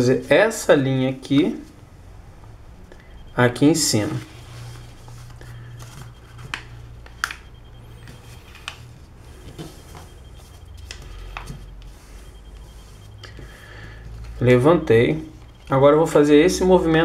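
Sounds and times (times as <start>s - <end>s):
steady low hum: 0.0s - 17.0s
paper being folded and creased: 4.0s - 7.4s.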